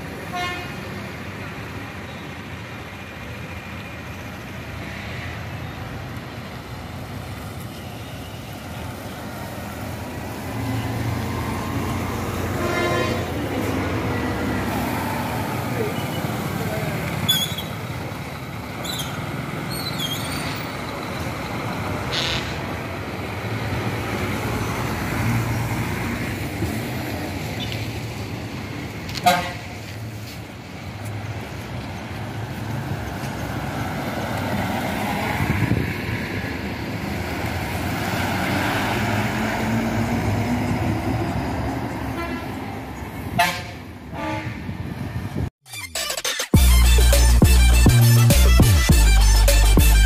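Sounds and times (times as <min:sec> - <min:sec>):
bus engine rumble: 0:00.0 - 0:45.9
bus horn toot: 0:00.2 - 0:00.8, 0:12.5 - 0:14.0, 0:29.1 - 0:29.7, 0:42.1 - 0:42.6, 0:43.3 - 0:44.8.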